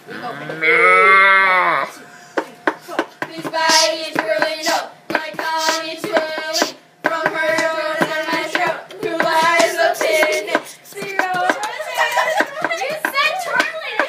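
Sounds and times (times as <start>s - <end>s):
rhythmic hand clapping: 2.4s - 14.0s
young voices singing wordless notes: 3.2s - 12.2s.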